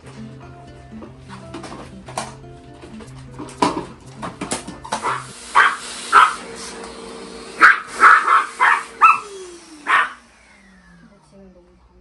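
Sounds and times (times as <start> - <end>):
vacuum cleaner running: 3.7 - 12.0
dog barking: 5.0 - 6.4, 7.6 - 10.2.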